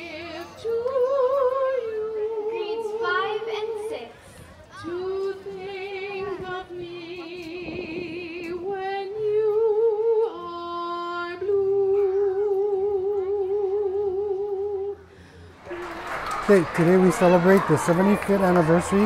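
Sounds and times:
woman singing with vibrato: 0:00.0 - 0:04.1, 0:04.8 - 0:15.0.

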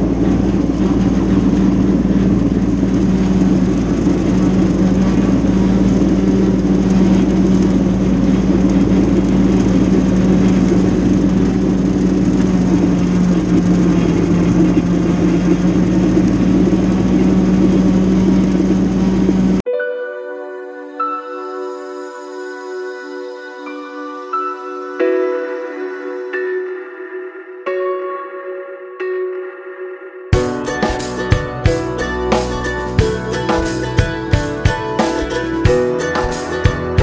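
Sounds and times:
tractor diesel engine running: 0:00.0 - 0:19.7, 0:30.4 - 0:37.0.

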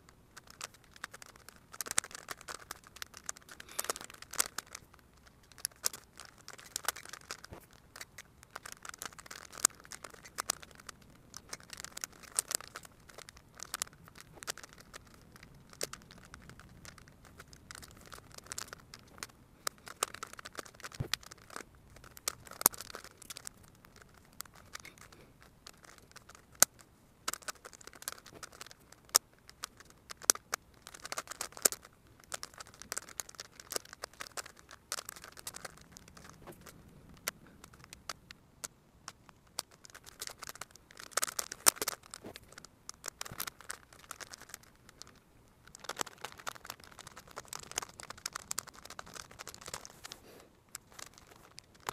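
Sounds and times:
puzzle plastic clicks and scraping: 0:00.0 - 0:51.9.

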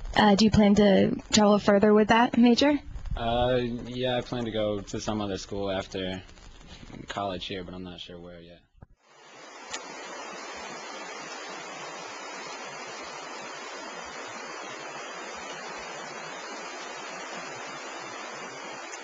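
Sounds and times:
stream water rushing: 0:09.1 - 0:19.0.

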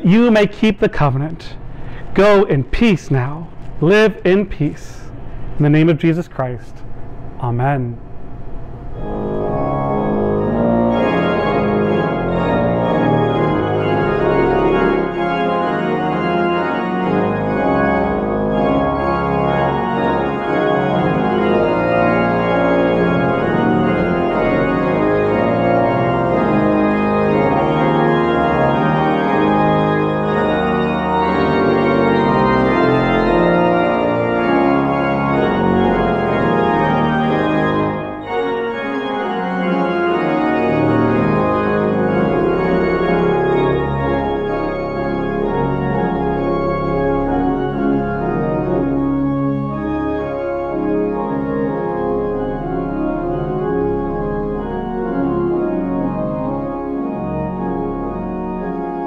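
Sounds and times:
sustained organ chords: 0:00.0 - 0:59.0.

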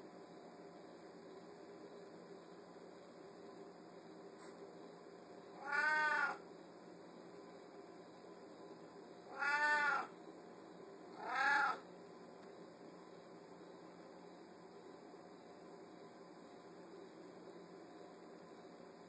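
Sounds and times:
cat meowing: 0:05.6 - 0:06.4, 0:09.3 - 0:10.1, 0:11.2 - 0:11.8.

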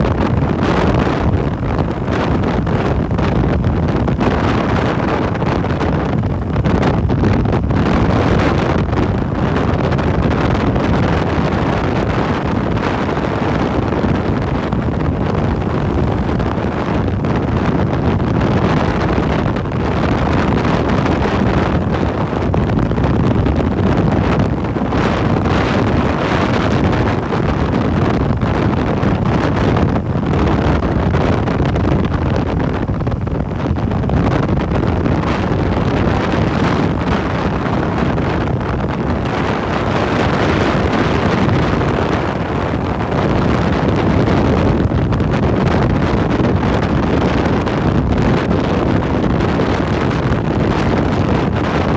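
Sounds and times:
wind buffeting microphone: 0:00.0 - 0:51.9.

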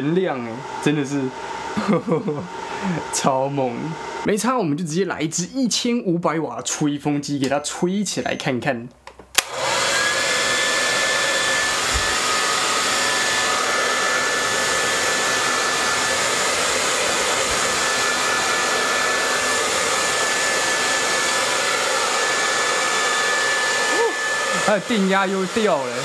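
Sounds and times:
hair dryer running: 0:00.0 - 0:04.3, 0:09.4 - 0:26.0
hair dryer switch click: 0:09.1 - 0:09.7.

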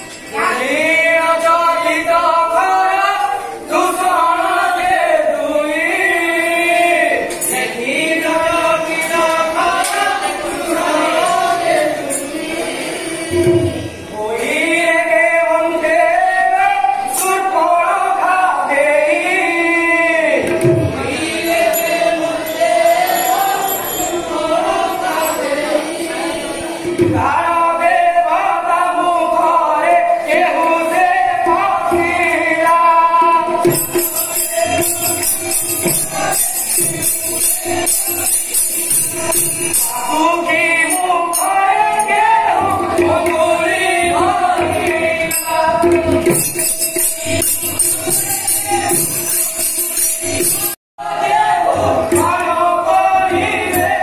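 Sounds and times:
instrumental accompaniment: 0:30.3 - 0:54.0.

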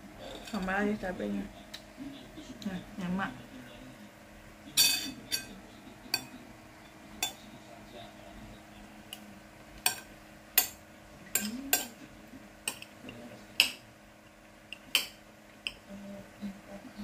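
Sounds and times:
spoon clinking on ceramic plate: 0:04.8 - 0:05.6, 0:09.8 - 0:12.0.

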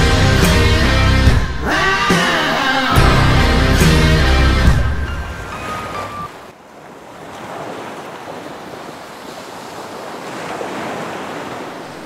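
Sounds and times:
music: 0:00.0 - 0:06.1
sea waves surging: 0:01.5 - 0:12.0
wind: 0:03.0 - 0:12.0.

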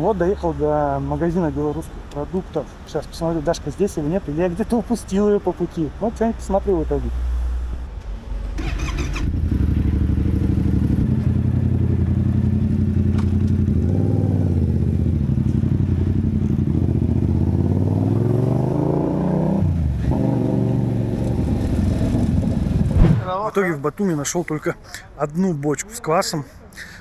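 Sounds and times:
motorcycle engine accelerating: 0:08.1 - 0:23.2.

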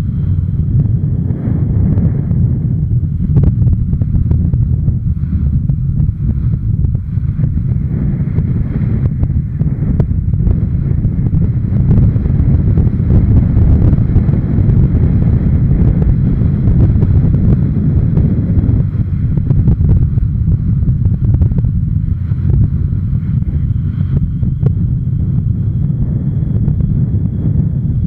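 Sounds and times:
road noise rumble: 0:00.0 - 0:28.0
wind buffeting microphone: 0:00.0 - 0:28.0.

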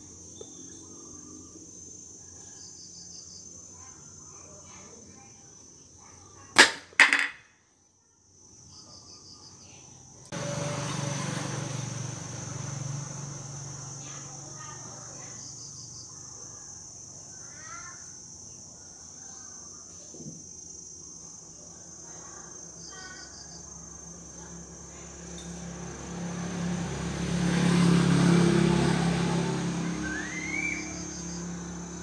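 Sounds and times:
high insect trill: 0:00.0 - 0:10.4, 0:11.0 - 0:32.0
sharp snaps of toy firing: 0:06.6 - 0:07.3.

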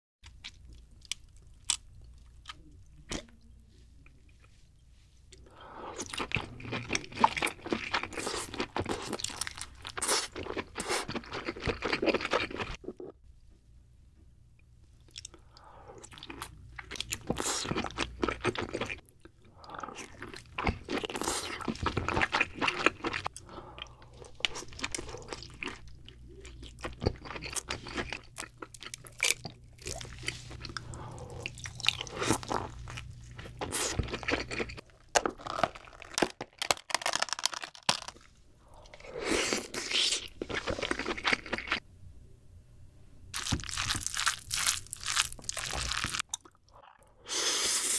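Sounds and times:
crunchy chewing and biting: 0:24.1 - 0:38.3, 0:43.4 - 0:47.0.

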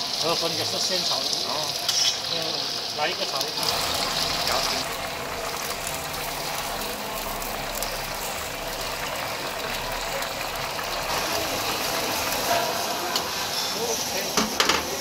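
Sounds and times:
noodles sizzling in hot oil: 0:00.0 - 0:15.0
gas burner rumble: 0:00.3 - 0:15.0.

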